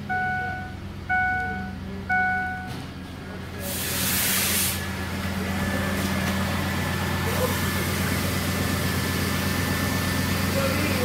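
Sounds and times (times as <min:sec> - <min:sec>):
dashboard warning chime: 0:00.0 - 0:03.0
car engine idling: 0:00.0 - 0:11.0
rush of hiss: 0:03.6 - 0:04.8.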